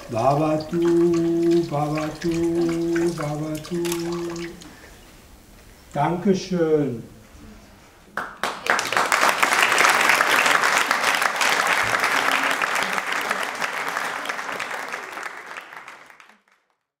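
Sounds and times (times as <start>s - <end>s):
audience applauding: 8.2s - 16.8s.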